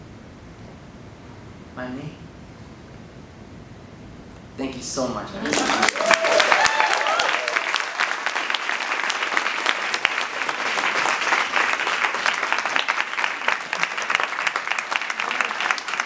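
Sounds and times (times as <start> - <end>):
audience applauding: 5.3 - 16.0.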